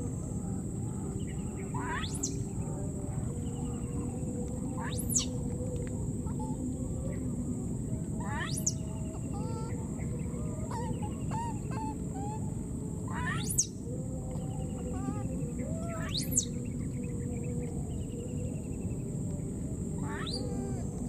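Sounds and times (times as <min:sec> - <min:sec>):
steady high-pitched hum: 0:00.0 - 0:21.0
shrill animal calls sweeping upward: 0:01.7 - 0:02.5, 0:04.8 - 0:05.4, 0:08.2 - 0:09.8, 0:13.1 - 0:13.8, 0:15.8 - 0:16.6, 0:20.0 - 0:20.9.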